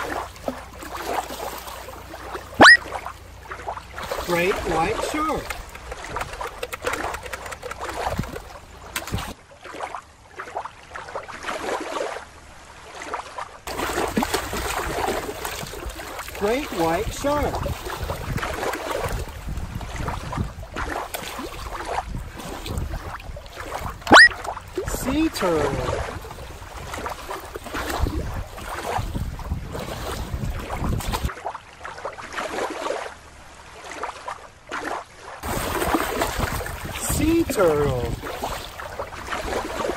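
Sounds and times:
water lapping on rocky shore: 0.0s - 39.9s
wind rumbling on microphone: 3.8s - 9.4s, 13.7s - 31.3s, 35.4s - 39.9s.

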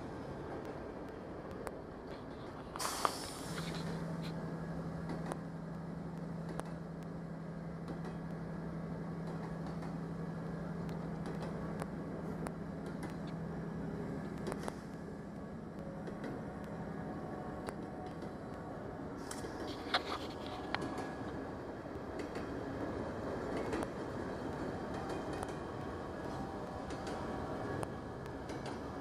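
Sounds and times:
diesel train idling hum: 0.0s - 29.0s
air release hiss: 2.8s - 3.6s.

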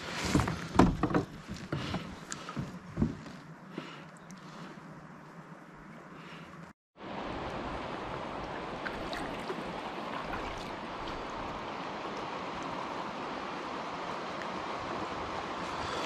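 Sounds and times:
river water rushing: 7.0s - 16.0s.

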